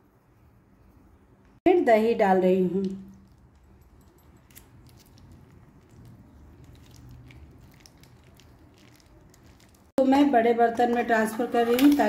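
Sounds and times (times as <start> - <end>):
plastic pouch crinkles: 4.5 - 9.9
wet squelching of curd: 4.5 - 10.0.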